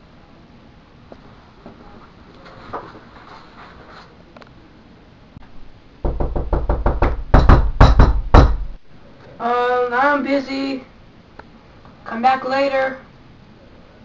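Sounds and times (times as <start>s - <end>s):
rapid knocking on a door: 6.0s - 8.8s.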